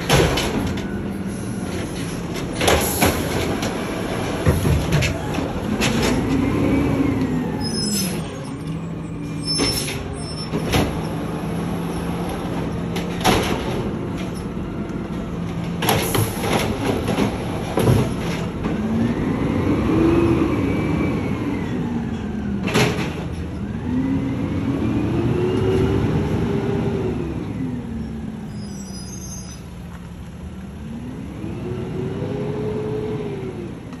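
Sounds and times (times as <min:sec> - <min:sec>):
garbage truck engine revving: 0:00.0 - 0:28.0.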